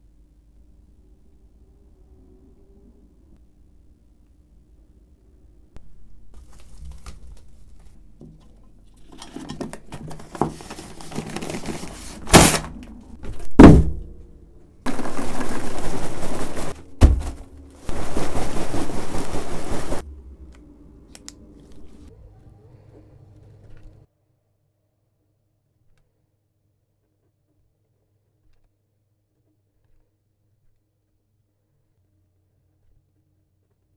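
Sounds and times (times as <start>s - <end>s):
wrapping material rustling: 6.2s - 8.2s, 10.0s - 13.4s, 14.9s - 20.0s
packing tape rasping pulls: 9.0s - 12.9s
heavy thuds into box: 13.3s - 14.2s, 14.9s - 17.6s.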